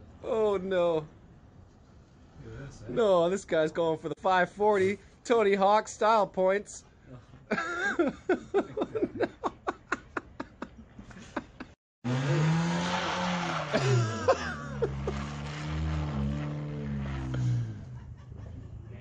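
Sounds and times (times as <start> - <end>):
person laughing: 7.5 - 11.8, 13.5 - 15.4
car engine revving: 12.0 - 18.8.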